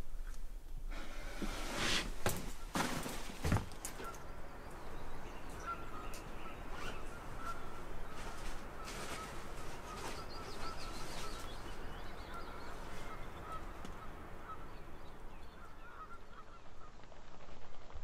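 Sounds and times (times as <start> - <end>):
low outdoor hum: 0.0 - 18.0
geese honking: 3.9 - 16.4.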